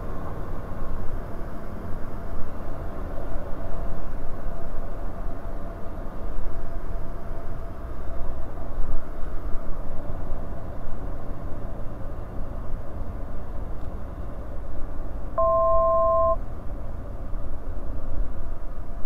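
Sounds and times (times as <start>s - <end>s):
light aircraft engine drone: 0.0s - 19.0s
two-tone electronic beep: 15.4s - 16.4s.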